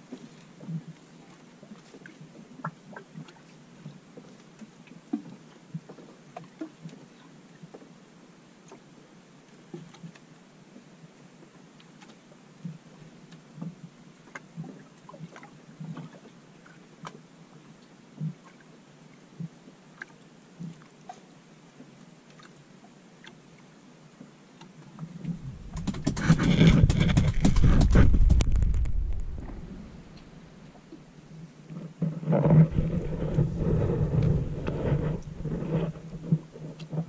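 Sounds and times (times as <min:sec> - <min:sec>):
wind buffeting microphone: 0:25.2 - 0:30.7, 0:32.5 - 0:36.5.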